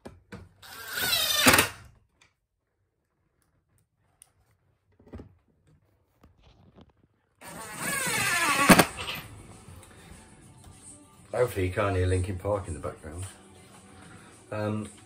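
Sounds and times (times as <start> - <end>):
power drill driving a screw: 0.6 - 1.8, 7.4 - 9.2.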